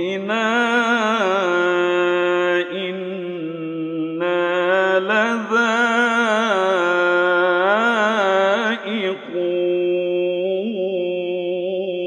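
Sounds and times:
man chanting melodically: 0.0s - 12.0s.

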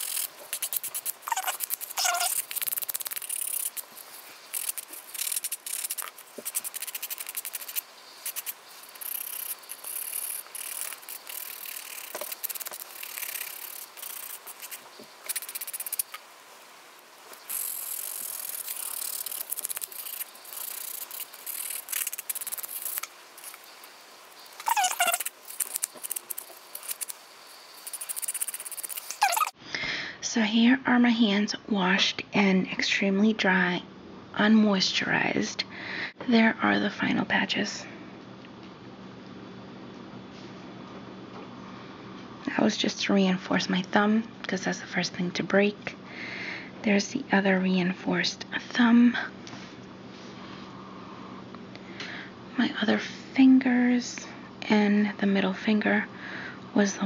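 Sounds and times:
short squeaks: 0.0s - 16.2s, 17.3s - 29.6s
nail buffer rasping on fingernail: 0.0s - 16.3s, 17.3s - 29.6s.

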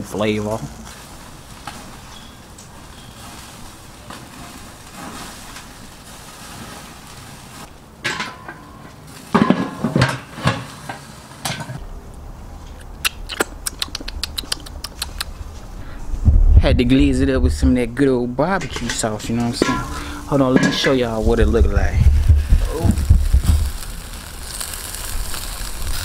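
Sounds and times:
metal grill parts clattering: 8.0s - 11.8s, 18.6s - 21.3s
bowl and brush clinking: 18.6s - 21.2s.

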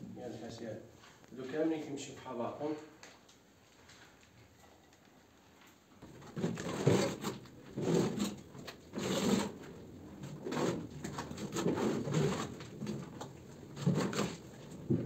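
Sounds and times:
plaster fibre scraping ceiling: 6.0s - 15.0s.

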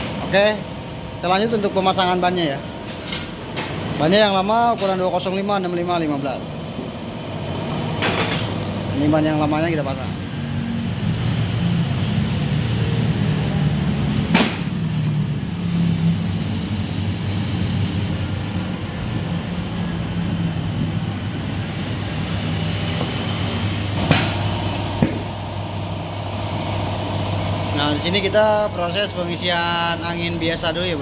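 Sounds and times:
tyre changing machine hum: 7.1s - 31.0s.

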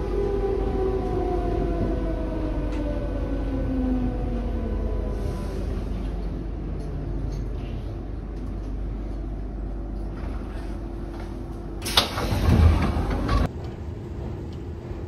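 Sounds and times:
train carriage rumbling: 0.0s - 15.0s
rush of air from opening doors: 11.8s - 13.4s.

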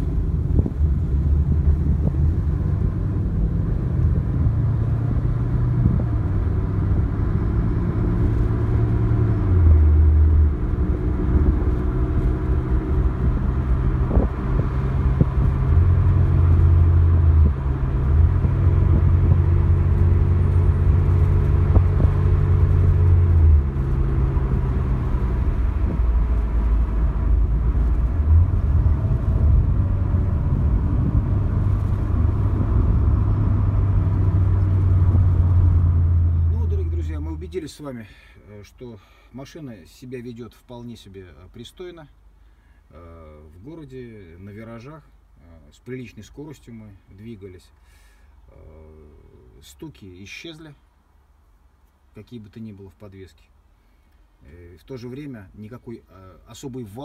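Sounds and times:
car engine and tyre hum inside cabin: 0.0s - 39.0s.

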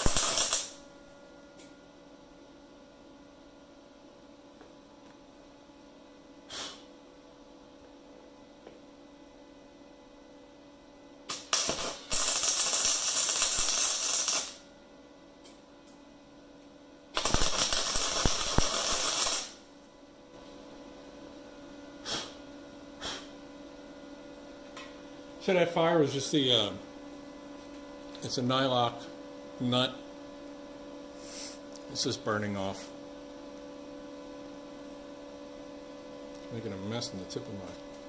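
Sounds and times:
welder crackling: 0.0s - 0.9s, 11.3s - 14.7s, 17.2s - 19.7s.

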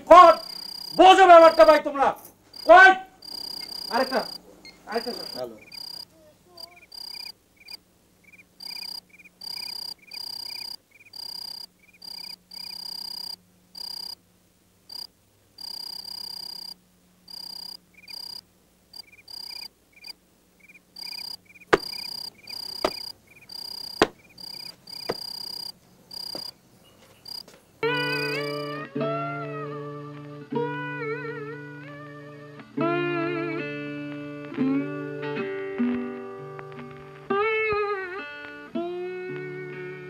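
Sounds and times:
crickets chirping: 0.0s - 14.2s, 14.9s - 28.8s
sharp knocks: 21.7s - 23.1s, 24.0s - 25.4s.

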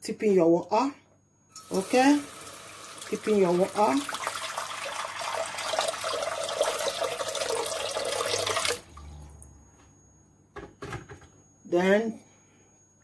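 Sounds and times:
water pouring into a pot: 1.6s - 8.9s.

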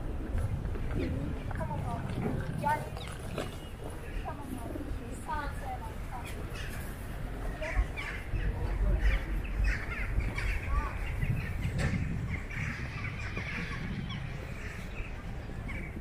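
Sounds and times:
birds calling: 0.0s - 16.0s
low rumble: 8.4s - 16.0s.

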